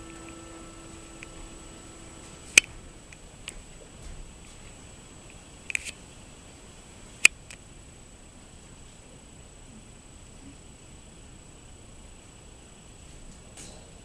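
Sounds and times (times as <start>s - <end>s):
held musical note: 0.0s - 3.8s
faint steady hiss: 0.0s - 14.0s
thin high whine: 0.0s - 14.0s.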